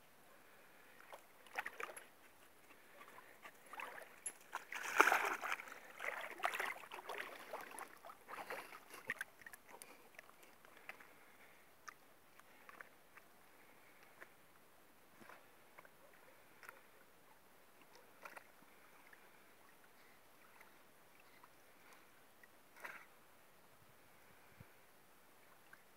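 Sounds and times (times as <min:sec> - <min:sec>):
dog splashing in water: 0:03.7 - 0:09.6.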